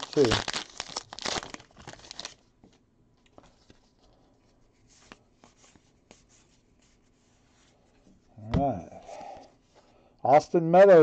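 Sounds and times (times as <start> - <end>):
cardboard cards rustling: 0.0 - 7.0.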